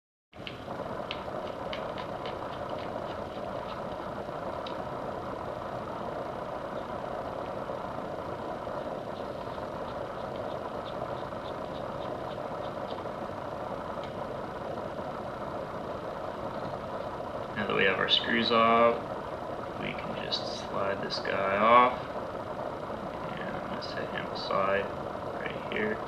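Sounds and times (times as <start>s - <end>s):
steady background hum: 0.4s - 26.0s.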